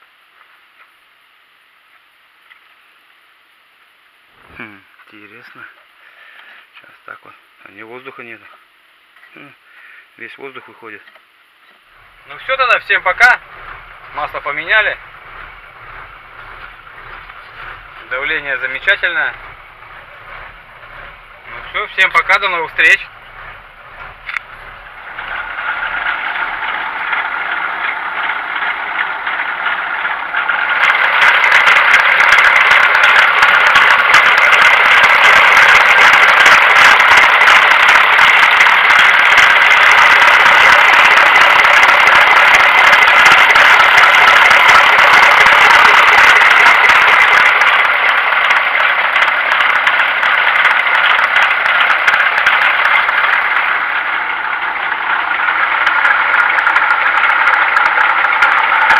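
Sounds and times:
diesel engine idling: 0:11.9 - 0:58.9.

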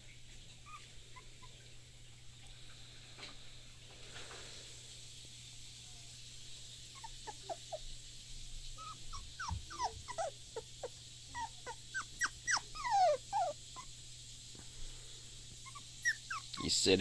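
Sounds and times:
puppy whimpering: 0:00.6 - 0:01.6, 0:07.0 - 0:07.9, 0:08.8 - 0:13.9, 0:15.6 - 0:17.0.

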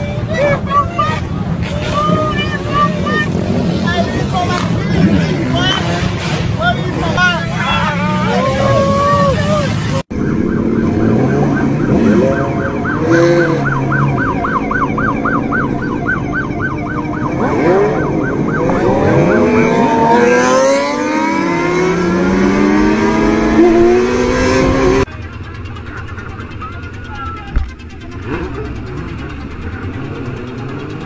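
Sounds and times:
motorcycle engine revving: 0:01.2 - 0:31.0
police siren yelping: 0:07.4 - 0:25.1.

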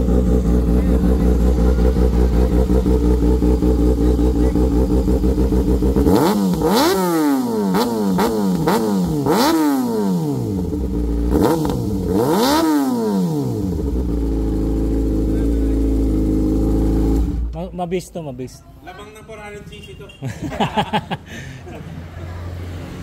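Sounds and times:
motorcycle engine revving: 0:00.0 - 0:17.6.

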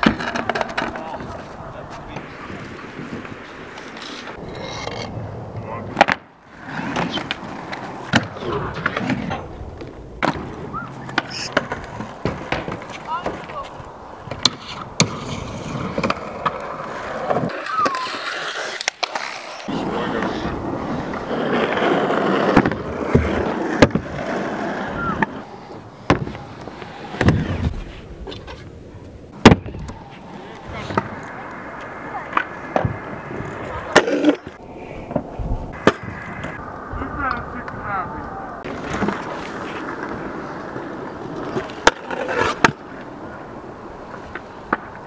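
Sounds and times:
scooter decks clacking on ground: 0:00.0 - 0:06.3, 0:06.9 - 0:20.4
scooter wheels rolling on concrete: 0:00.0 - 0:45.0.

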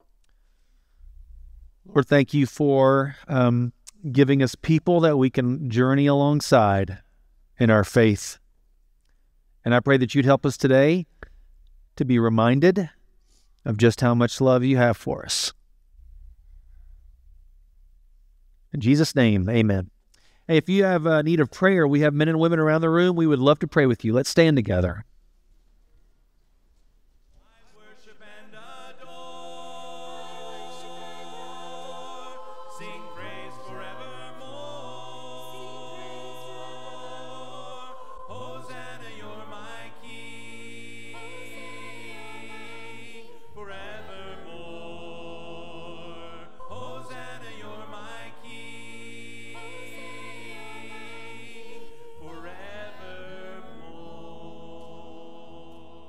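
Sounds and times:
choir singing a cappella: 0:27.4 - 0:56.0.

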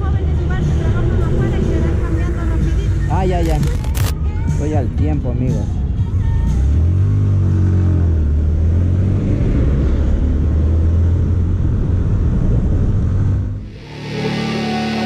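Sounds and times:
wind rush on microphone: 0:11.1 - 0:13.8
motorcycle engine running: 0:13.6 - 0:15.0.

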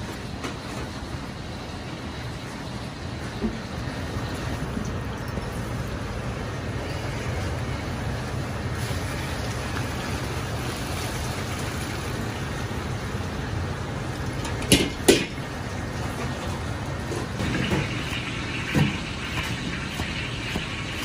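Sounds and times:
water pouring into a colander: 0:07.5 - 0:13.4.

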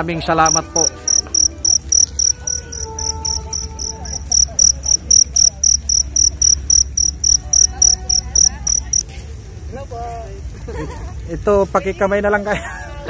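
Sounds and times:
cricket chirping: 0:00.4 - 0:09.1.

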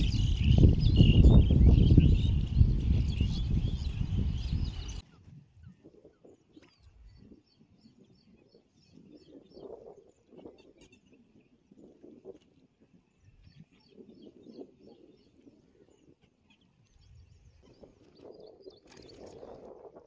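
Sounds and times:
birds chirping: 0:00.0 - 0:20.0
soft outdoor sounds: 0:00.0 - 0:20.0
wind buffeting microphone: 0:00.0 - 0:20.0.

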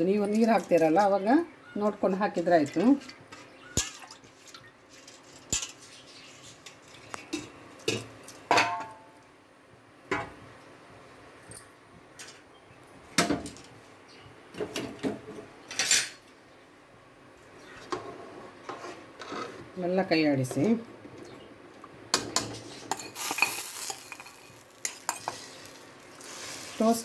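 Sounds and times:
metal utensils clinking on pot: 0:22.2 - 0:25.8.

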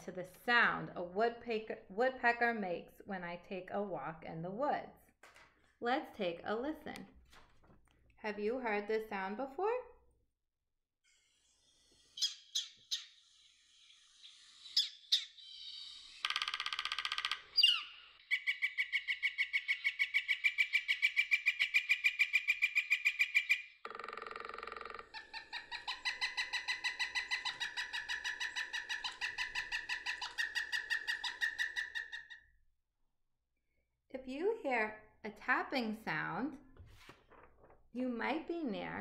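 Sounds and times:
woodpecker drumming: 0:14.7 - 0:32.4.

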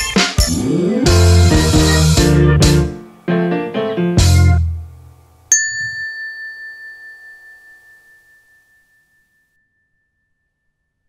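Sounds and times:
outro music: 0:00.0 - 0:05.3
bright bell ding: 0:05.5 - 0:09.5.

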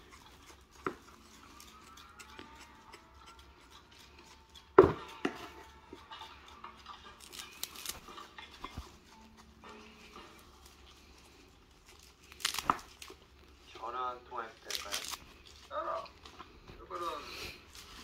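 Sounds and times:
knife scraping stems: 0:00.0 - 0:13.2
leaves rustling: 0:07.2 - 0:08.1, 0:11.1 - 0:16.3, 0:16.9 - 0:18.0.

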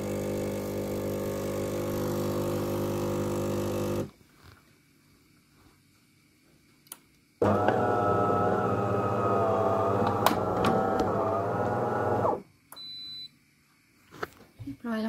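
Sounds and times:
espresso machine motor humming: 0:00.0 - 0:04.1, 0:07.4 - 0:12.4.

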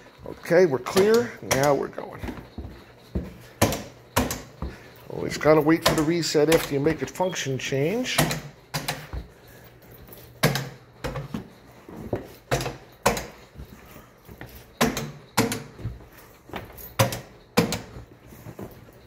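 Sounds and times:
sharp knocks and clacks: 0:00.0 - 0:07.2, 0:14.4 - 0:18.1.

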